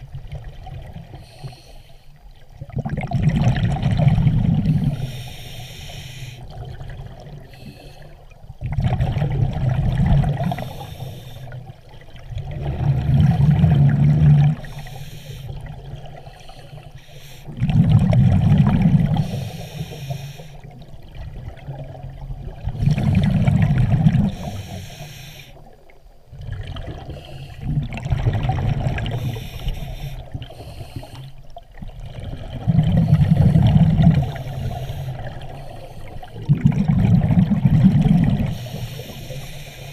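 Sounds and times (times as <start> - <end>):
regulator hiss on inhale: 1.1 - 2.3, 4.7 - 6.6, 7.4 - 8.3, 10.4 - 11.7, 14.6 - 17.6, 19.1 - 20.7, 24.3 - 25.7, 27.0 - 27.7, 29.1 - 31.5, 32.9 - 36.4, 38.4 - 39.9
exhaled bubbles bursting: 2.6 - 5.0, 8.6 - 10.6, 12.2 - 14.7, 17.5 - 19.2, 21.1 - 24.5, 26.3 - 29.4, 31.8 - 34.6, 36.2 - 38.6.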